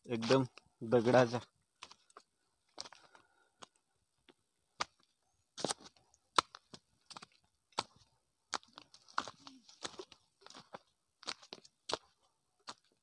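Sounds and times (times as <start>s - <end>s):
footsteps on gravel: 1.8s - 3.2s, 5.6s - 13.0s.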